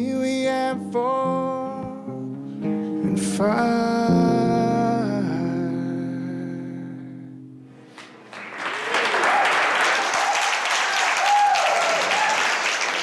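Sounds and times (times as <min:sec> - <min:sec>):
crowd applauding: 0:08.0 - 0:13.0.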